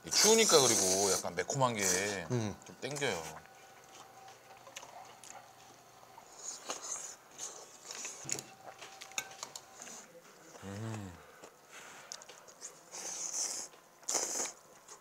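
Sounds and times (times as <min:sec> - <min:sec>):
low hum from person: 0:00.0 - 0:12.8
slurping broth: 0:00.2 - 0:02.2, 0:12.9 - 0:14.6.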